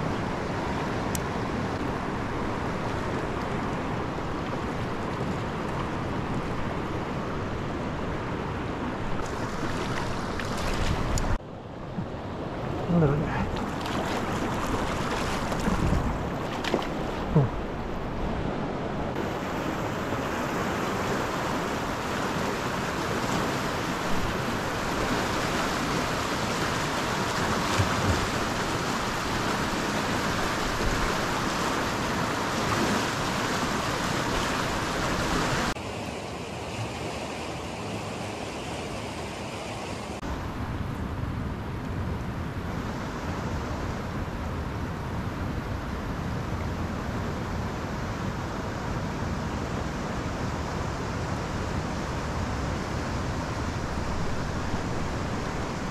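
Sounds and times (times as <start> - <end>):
river rushing: 0.0 - 41.8, 46.1 - 55.9
wind buffeting microphone: 13.6 - 19.2.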